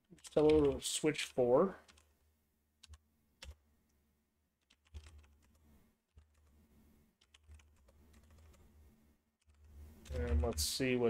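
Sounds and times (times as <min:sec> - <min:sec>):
faint keyboard typing: 0:00.0 - 0:02.1, 0:02.8 - 0:03.6, 0:04.6 - 0:08.7, 0:09.4 - 0:10.7.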